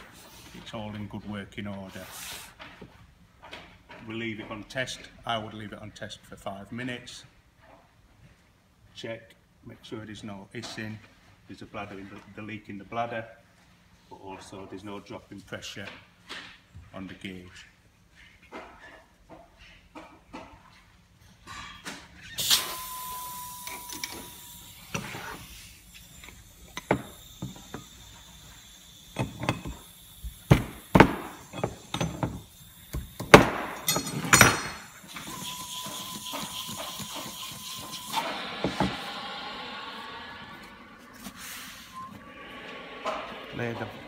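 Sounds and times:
air hissing from bag: 24.6 - 26.2, 41.1 - 42.0.

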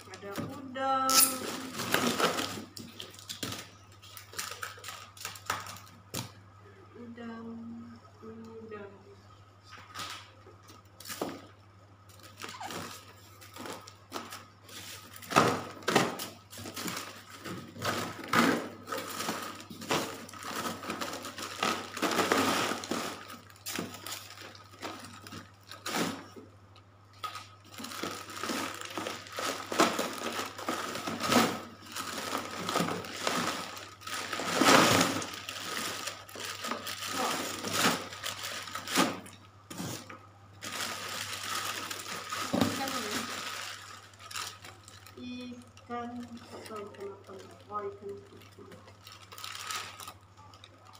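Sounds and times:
plastic bags crinkling: 0.0 - 6.4, 9.6 - 50.9
crushed ice crunching: 12.3 - 26.4, 27.4 - 50.9.

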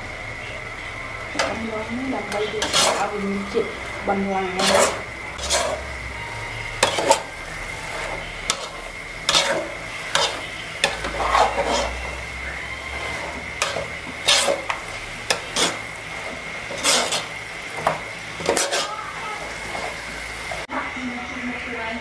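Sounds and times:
light sizzle: 0.0 - 21.9
metal ladle scraping pot: 2.2 - 5.9, 6.8 - 19.0
faint steady high tone: 5.9 - 8.9, 11.9 - 13.4.

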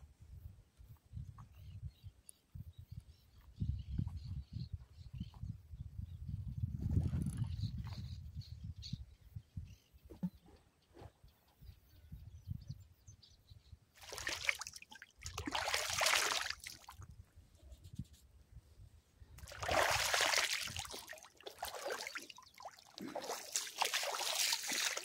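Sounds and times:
water splashing and trickling: 14.0 - 17.1, 19.4 - 25.0.

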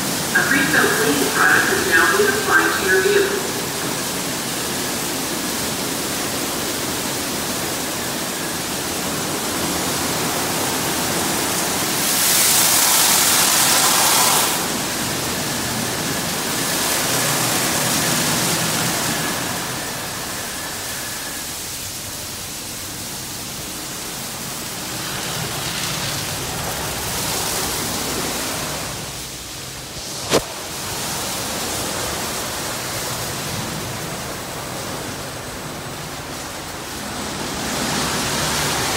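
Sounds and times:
faint steady whine: 0.0 - 38.9
car wash brushes and spray: 3.9 - 33.7.

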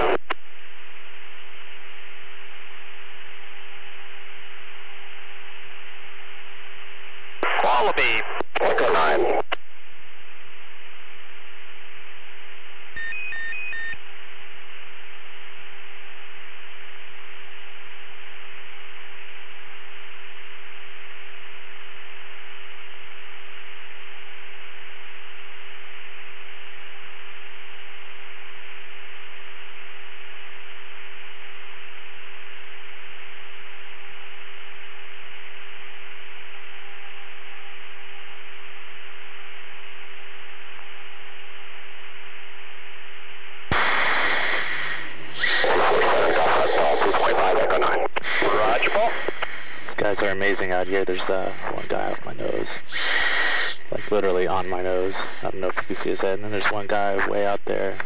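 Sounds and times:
radio channel hiss: 0.0 - 58.0
low hum tone: 9.7 - 50.6
short beeps: 13.0 - 14.0.

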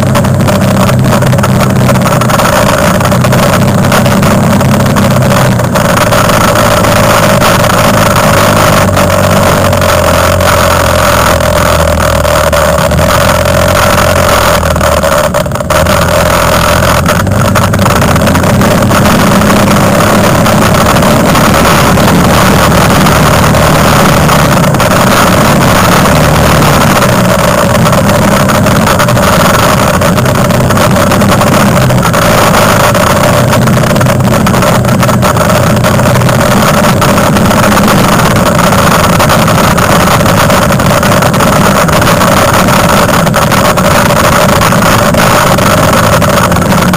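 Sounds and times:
quad bike engine running: 0.0 - 46.9.

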